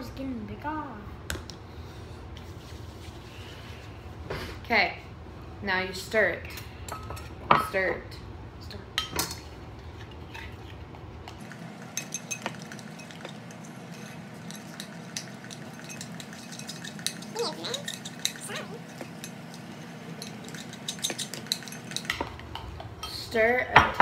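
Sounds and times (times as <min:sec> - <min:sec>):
metal spoon stirring slime in bowl: 0:11.8 - 0:22.3
spatula stirring in plastic tub: 0:11.8 - 0:22.4
spoon clinking against bowl: 0:11.9 - 0:22.3.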